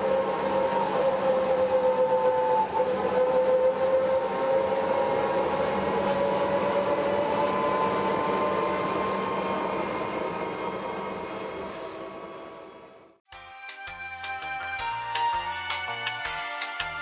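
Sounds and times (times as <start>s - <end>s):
trolleybus motor whine: 0.0s - 13.2s.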